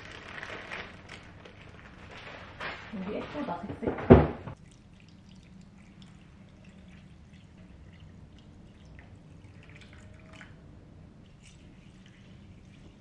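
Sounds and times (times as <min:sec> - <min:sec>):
water dripping and trickling: 0:04.6 - 0:13.0.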